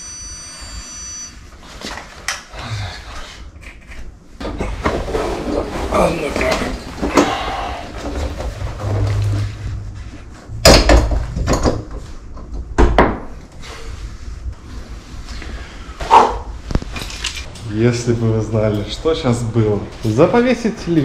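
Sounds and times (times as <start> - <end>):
low hum: 0.0 - 1.7, 6.8 - 20.2.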